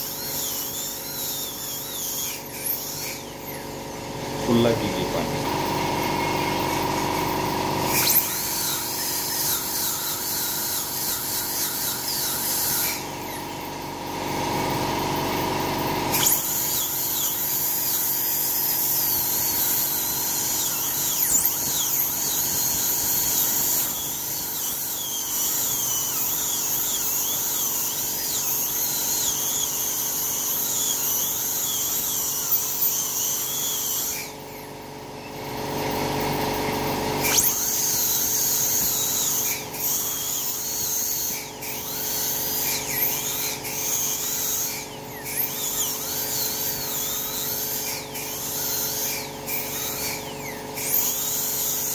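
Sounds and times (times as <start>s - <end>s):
dental drill whining: 0.0s - 51.9s.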